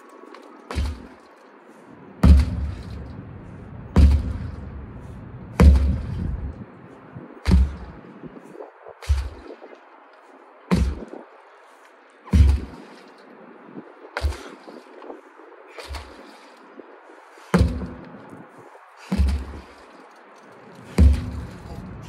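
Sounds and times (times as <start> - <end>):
sledgehammer striking tire: 2.2 - 3.0, 4.0 - 4.8, 5.5 - 6.5, 7.4 - 8.0, 9.0 - 9.4, 10.7 - 11.1, 12.3 - 12.8, 17.5 - 18.1, 19.1 - 19.6, 20.9 - 22.0.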